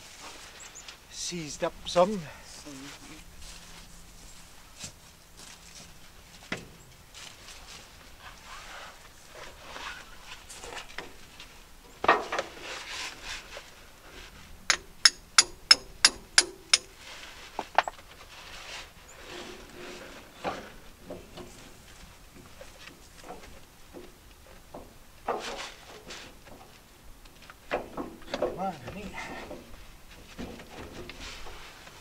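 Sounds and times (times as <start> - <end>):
ringing metal taps: 14.7 - 16.9.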